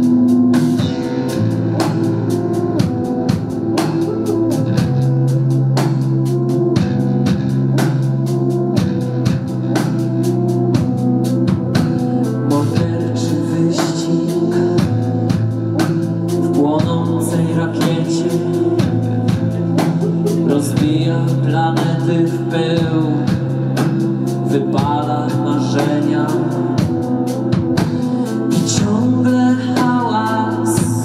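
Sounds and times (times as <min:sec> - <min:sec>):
bass and keyboard chords: 0:00.0 - 0:31.0
fast drum beat: 0:00.0 - 0:31.0
wavering melody line: 0:00.8 - 0:05.8, 0:18.3 - 0:22.5.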